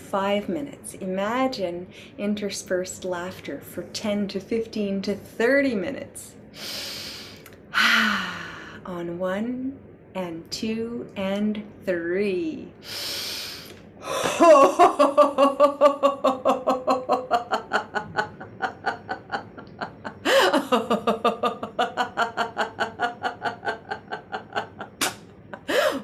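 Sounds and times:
woman breathing in: 6.6 - 8.8, 12.8 - 14.4, 25.7 - 26.0
woman laughing: 14.1 - 26.0.

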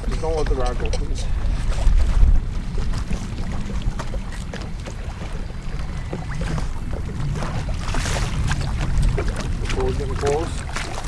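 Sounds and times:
water lapping at boat hull: 0.0 - 11.0
wind: 0.0 - 11.0.

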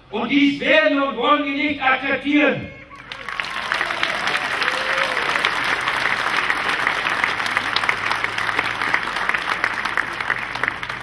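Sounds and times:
crowd applauding: 2.9 - 11.0.

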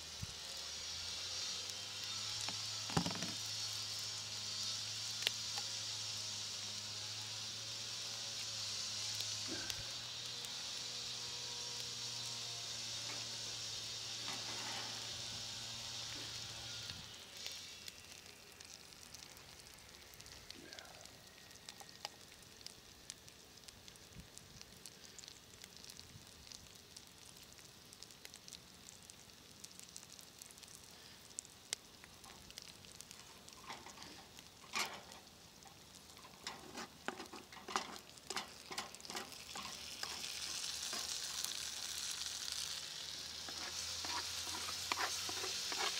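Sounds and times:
vegetables sizzling in a frying pan: 0.0 - 45.9
wooden spatula scraping a pan: 14.2 - 15.0, 36.2 - 41.6, 43.4 - 45.9.

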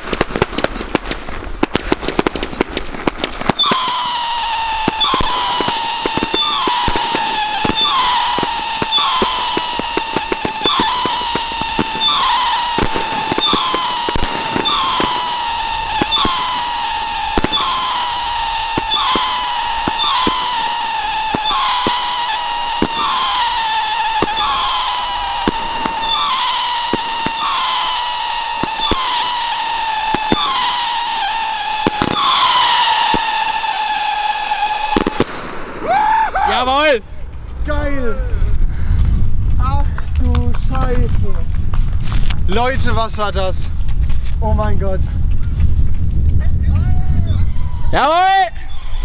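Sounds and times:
whistling firework shots: 0.0 - 37.0
firework launch cracks: 0.0 - 37.9, 38.5 - 44.4.

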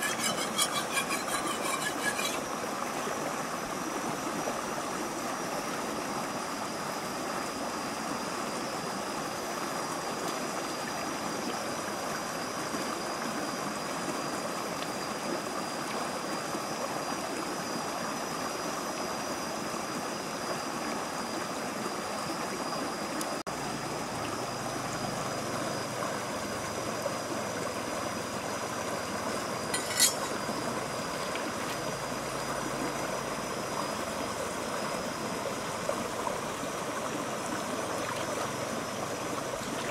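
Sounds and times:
thin high tone: 0.0 - 2.4, 29.7 - 30.6.

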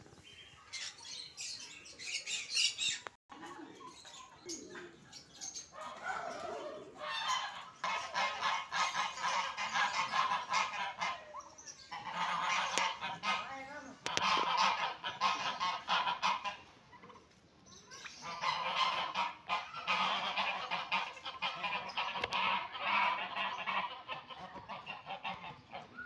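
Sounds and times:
geese honking: 5.8 - 17.1, 18.1 - 26.0.

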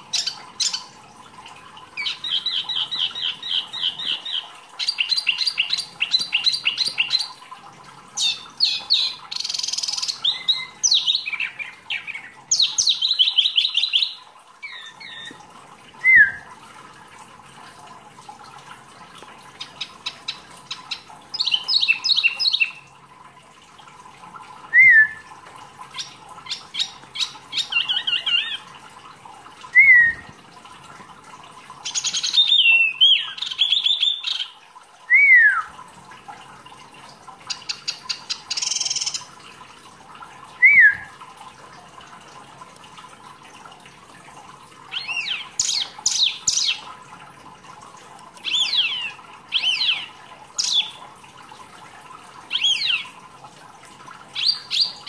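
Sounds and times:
short down-slurred whistles: 16.0 - 16.5, 24.7 - 25.3, 29.8 - 30.3, 35.1 - 35.7, 40.6 - 41.2.

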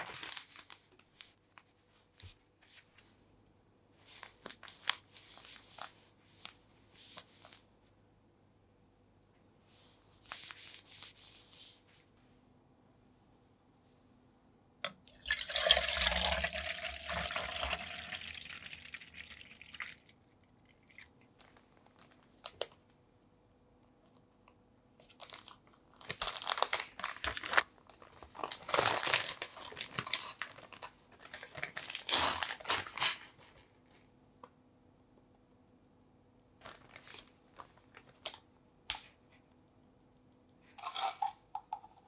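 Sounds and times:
liquid pouring into plastic jug: 14.9 - 21.2
plastic bag crinkling: 25.0 - 33.5.

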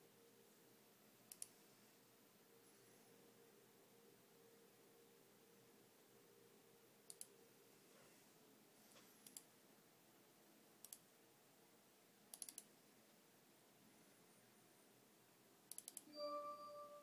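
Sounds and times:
faint steady hum: 0.0 - 17.0
computer mouse clicking: 1.3 - 1.6, 7.0 - 7.3, 9.2 - 9.5, 10.8 - 11.1, 12.3 - 12.7, 15.7 - 16.1.

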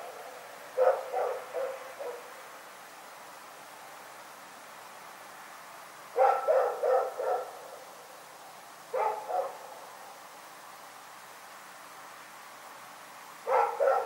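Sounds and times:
dog barking: 0.8 - 2.3, 6.2 - 7.6, 8.9 - 9.7, 13.4 - 14.0.

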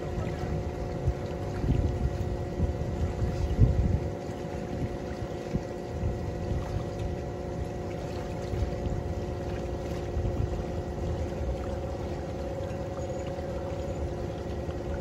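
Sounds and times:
wind buffeting microphone: 0.0 - 7.0
boat motor running: 0.0 - 15.0.

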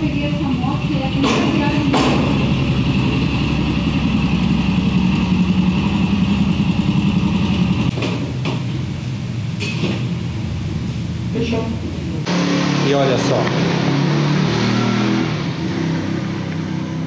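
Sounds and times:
motorcycle engine idling: 0.0 - 7.9.

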